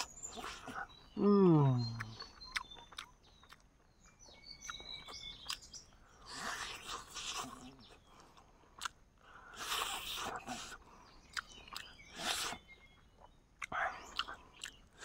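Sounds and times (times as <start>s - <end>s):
birds chirping faintly: 0.0s - 15.0s
person chewing crunchy food: 0.0s - 15.0s
low hum-like voice: 1.2s - 2.2s.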